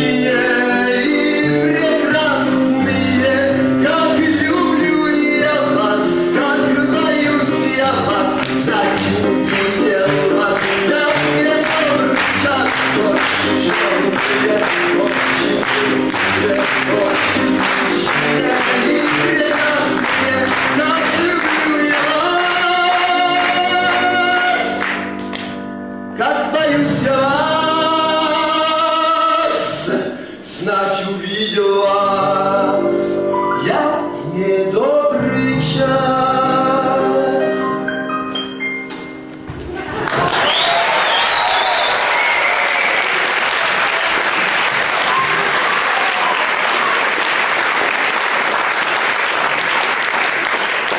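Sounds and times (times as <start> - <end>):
instrumental accompaniment: 0.0 - 29.3, 32.2 - 40.0
audience applauding: 7.7 - 25.6, 39.8 - 50.9.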